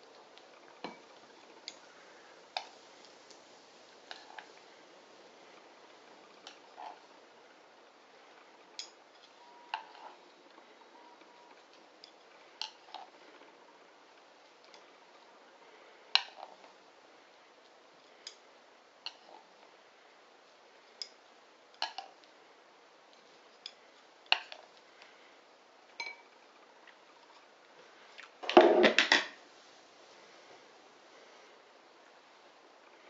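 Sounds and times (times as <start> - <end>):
tableware and utensils clinking: 26.0 - 26.3, 28.4 - 29.4.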